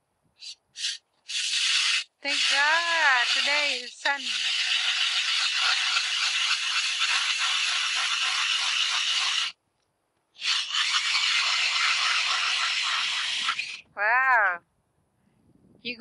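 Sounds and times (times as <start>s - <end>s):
ice auger grinding through ice: 1.3s - 9.5s, 10.4s - 13.8s.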